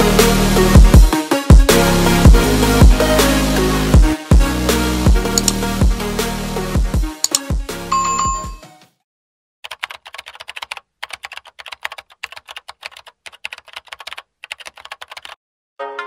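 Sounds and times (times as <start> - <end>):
music track: 0.0 - 8.8, 15.8 - 16.0
keyboard typing clicks: 5.4 - 5.6, 7.2 - 8.6.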